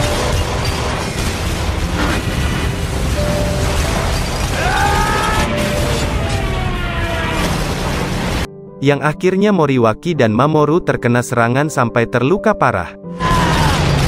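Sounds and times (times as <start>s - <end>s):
explosions: 0.0s - 8.5s, 13.2s - 14.0s
film soundtrack music: 0.0s - 14.0s.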